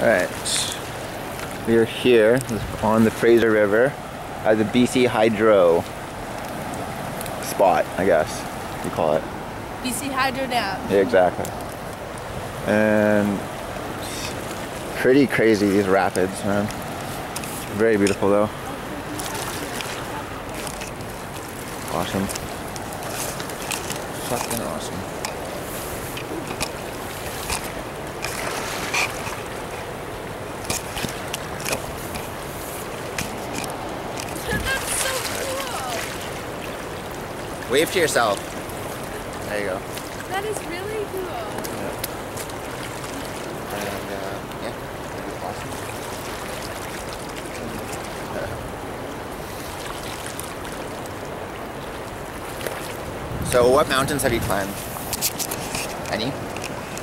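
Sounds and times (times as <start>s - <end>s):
river rapids rushing: 0.0s - 57.0s.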